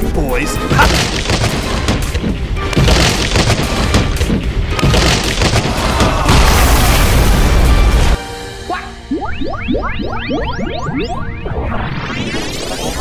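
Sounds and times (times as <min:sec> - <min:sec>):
background music: 0:00.0 - 0:11.7
boom and impact hits: 0:00.8 - 0:08.2
rumbling explosion: 0:04.8 - 0:08.2.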